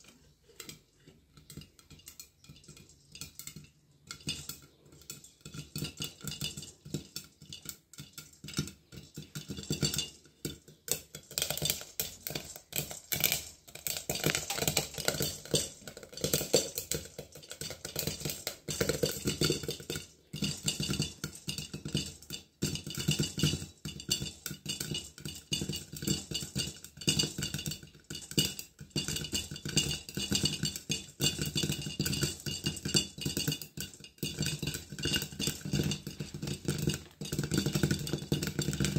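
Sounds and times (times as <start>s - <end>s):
grains popping in covered pan: 0.0s - 38.9s.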